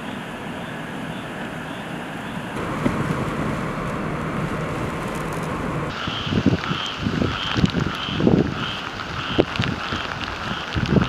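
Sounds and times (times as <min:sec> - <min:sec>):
vehicle engine hum: 0:00.0 - 0:06.8
hurricane wind and rain: 0:00.0 - 0:11.0.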